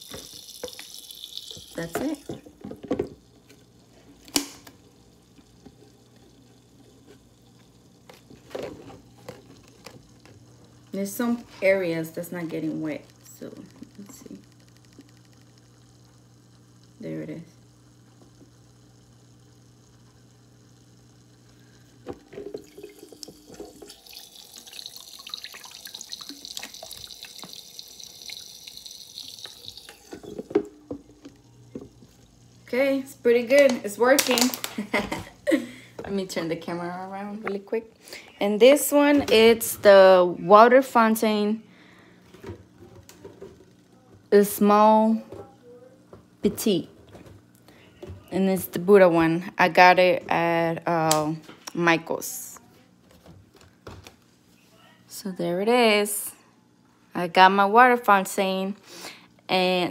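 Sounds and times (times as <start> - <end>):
water trickling: 0.0 - 16.9, 22.2 - 32.0
water pump humming: 0.0 - 51.4.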